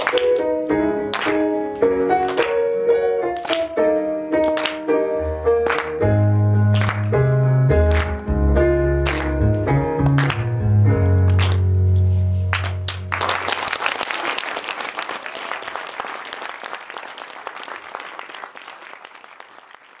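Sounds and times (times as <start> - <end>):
audience applauding: 0.0 - 0.5, 1.1 - 1.6, 2.2 - 2.6, 3.4 - 3.7, 4.4 - 4.9, 5.6 - 6.0, 6.7 - 7.2, 7.8 - 8.3, 9.0 - 10.6, 11.3 - 11.6, 12.5 - 20.0.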